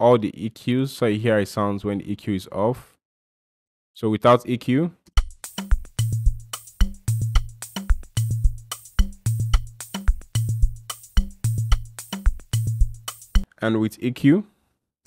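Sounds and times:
drum loop with sharp hits: 5.2 - 13.5.

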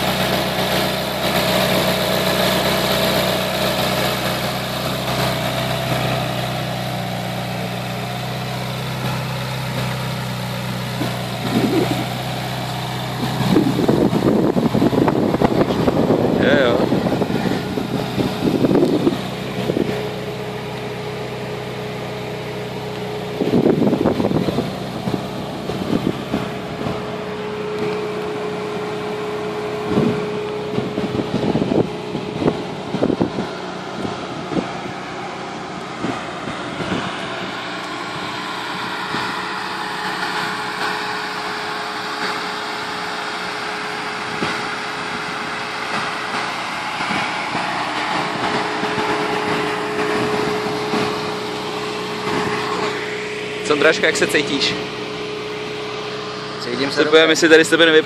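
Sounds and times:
car engine idling: 0.0 - 58.0
engine revving bursts: 0.0 - 58.0.

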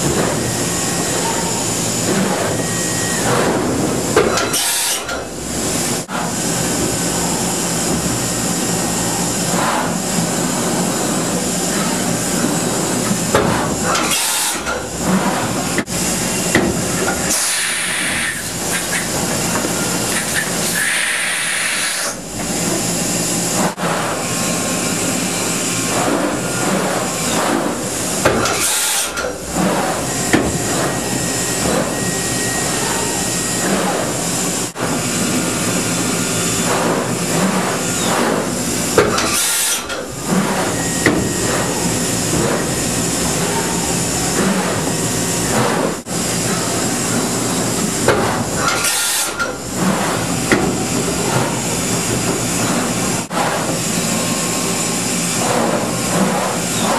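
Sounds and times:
machine whirring and clunking: 0.0 - 56.9.

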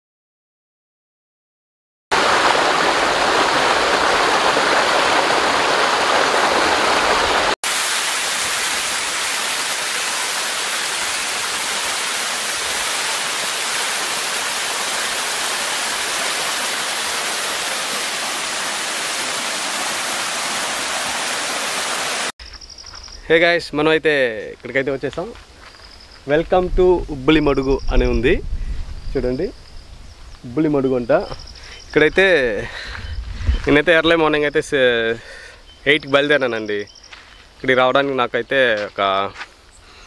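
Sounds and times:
waterfall rushing: 2.1 - 22.4.

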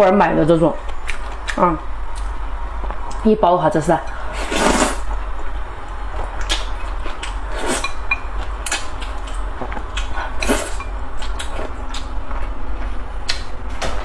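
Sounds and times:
person slurping noodles: 4.3 - 5.0
wet chewing clicks and smacks: 8.5 - 10.2, 11.1 - 13.5.

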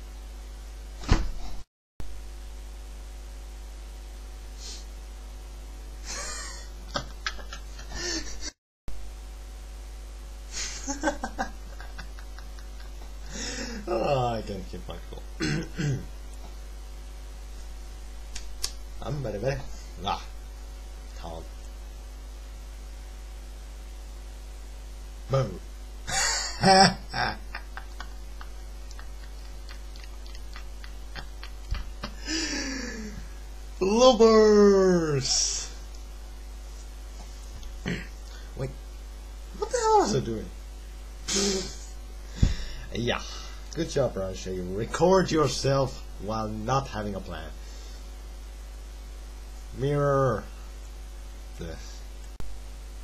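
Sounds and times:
low electrical hum: 0.0 - 53.0
person laughing: 6.1 - 8.5, 10.5 - 14.3, 26.1 - 33.3, 41.3 - 41.9
breathy exhales: 13.3 - 13.9, 32.2 - 33.3, 41.3 - 43.6.

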